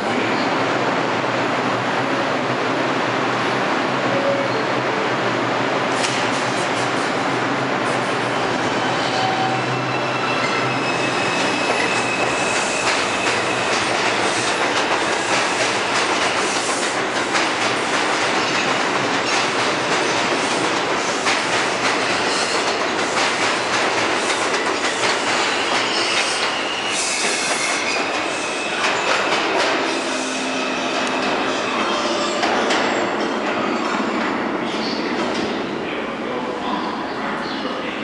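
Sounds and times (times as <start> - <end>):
high wheel squeal: 8.4 - 13.8, 25.5 - 29.2
train wheel rumble on rails: 10.5 - 31.5
rail joint clicks: 11.4 - 26.6.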